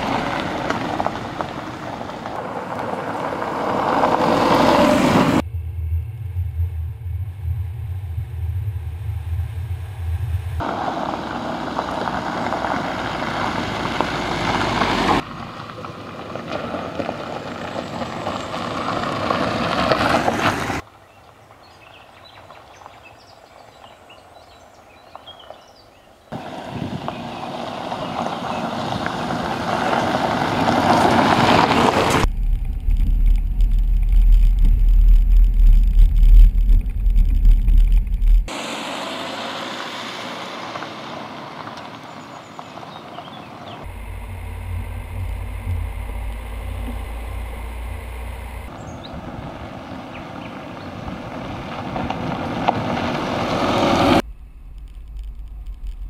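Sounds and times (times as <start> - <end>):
car engine and tyre noise: 0.0 - 56.0
wind rumble on microphone: 2.3 - 10.7, 26.4 - 38.5, 43.9 - 56.0.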